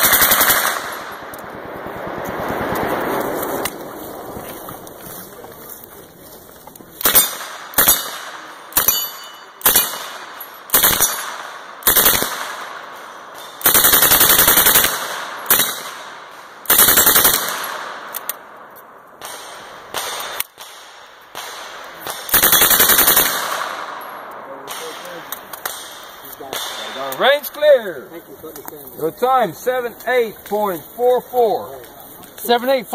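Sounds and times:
submachine gun automatic fire: 0.0s - 1.2s, 9.6s - 10.1s, 10.7s - 12.7s, 13.6s - 16.0s, 16.6s - 17.9s, 22.3s - 23.8s.

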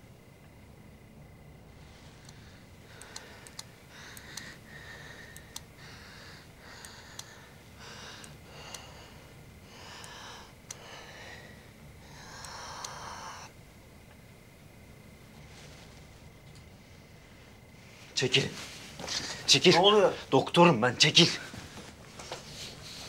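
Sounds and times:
sharp clicks: 2.2s - 4.6s, 5.3s - 5.7s, 6.6s - 7.4s, 10.0s - 10.8s, 12.2s - 13.1s.

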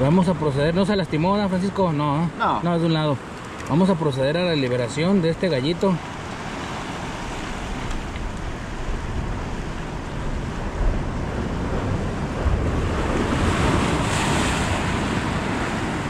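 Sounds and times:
surf washing against rocks: 0.0s - 16.0s
wind on microphone: 6.0s - 16.0s
wave breaking on rocks: 6.2s - 16.0s.

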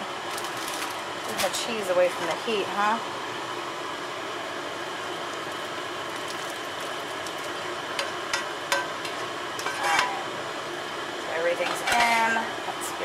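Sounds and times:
metal spoon scraping a pan: 8.7s - 10.3s.

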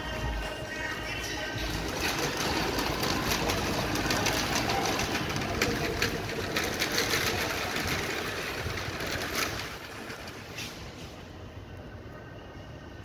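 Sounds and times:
shopping trolley rattling: 0.8s - 11.1s.

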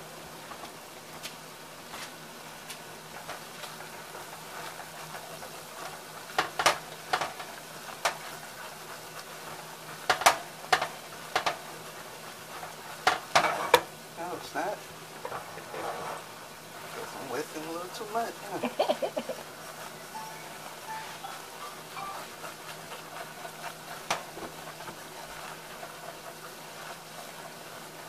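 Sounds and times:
roux sizzling in a saucepan: 0.0s - 28.0s
whisk clicking against pan: 3.1s - 13.9s, 22.2s - 28.0s.

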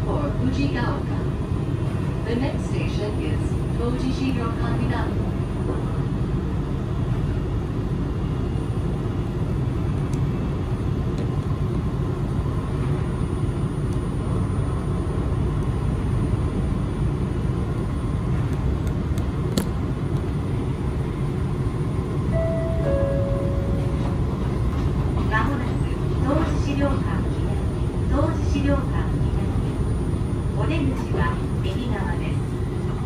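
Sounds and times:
train running rumble: 0.0s - 33.0s
faint high steady tone: 22.3s - 24.0s.

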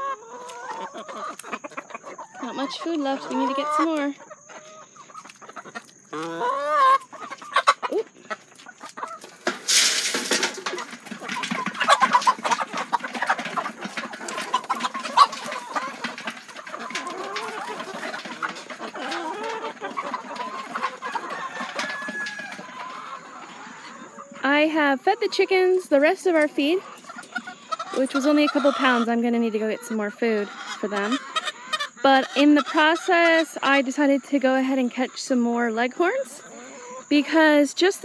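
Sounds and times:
hens clucking: 0.0s - 38.0s
feed being poured: 9.5s - 12.8s.

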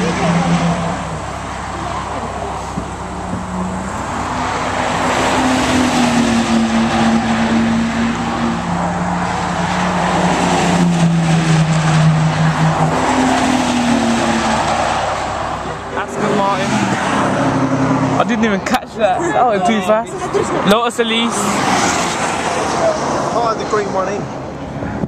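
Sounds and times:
sports cars driving past: 0.0s - 24.8s
tyre and wind noise: 24.5s - 25.0s.

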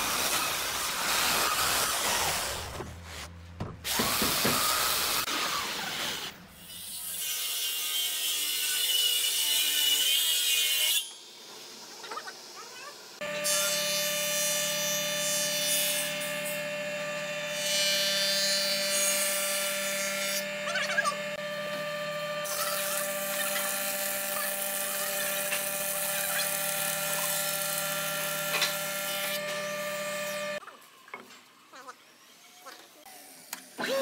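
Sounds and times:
thickness planer whining: 13.2s - 30.6s.

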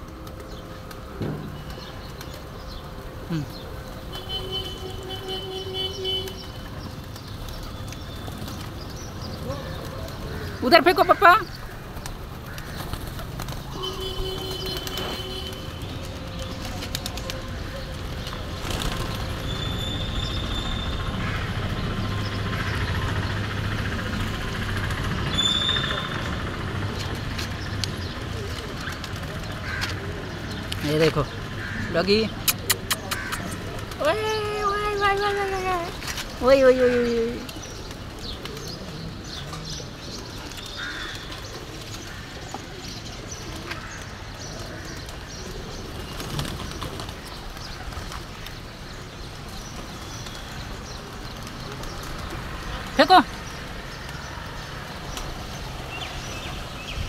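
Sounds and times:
vehicle engine rumbling: 0.0s - 30.7s
street noise: 0.0s - 57.0s.

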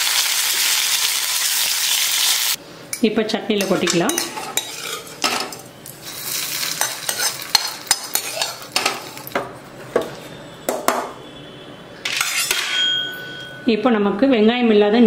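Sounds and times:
hot oil sizzling: 0.0s - 2.6s, 3.7s - 9.4s.

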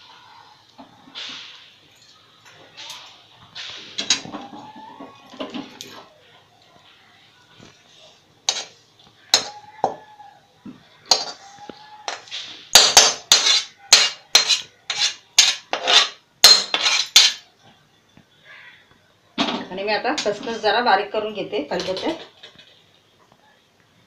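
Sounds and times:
steel ladle scraping a pan: 8.5s - 9.6s, 11.1s - 17.4s.

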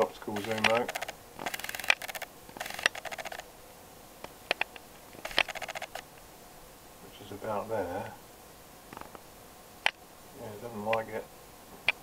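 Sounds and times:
lens motor fast ticking: 0.4s - 3.5s, 4.5s - 6.1s.

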